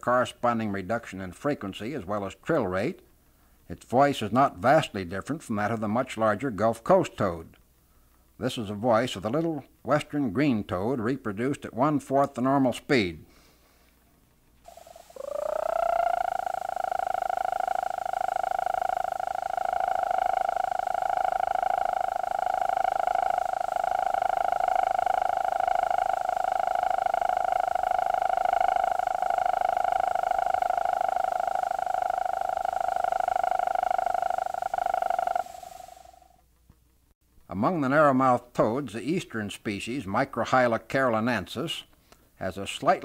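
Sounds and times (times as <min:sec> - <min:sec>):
slowed toad trill: 0:14.6 - 0:36.4.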